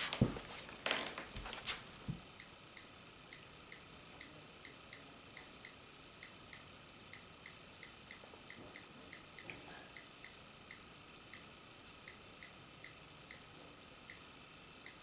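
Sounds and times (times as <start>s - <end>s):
handling bumps and rustles: 0.0s - 2.2s.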